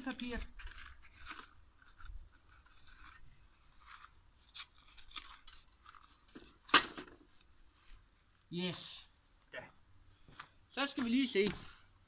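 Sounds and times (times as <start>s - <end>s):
paper tape crinkling and tearing: 0.0s - 6.8s.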